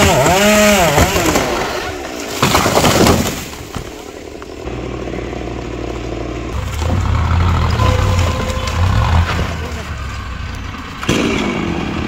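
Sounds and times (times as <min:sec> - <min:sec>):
chainsaw revving: 0:00.0 - 0:02.0, 0:04.6 - 0:09.8
low engine drone: 0:04.2 - 0:12.0.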